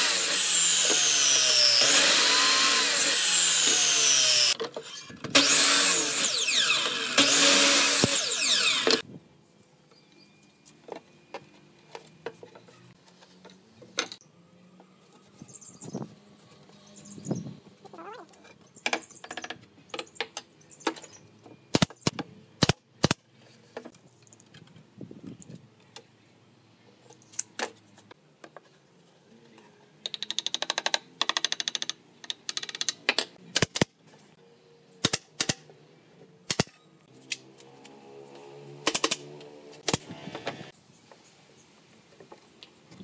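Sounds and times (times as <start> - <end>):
electric drill humming: 0.0 - 4.6, 5.3 - 9.0.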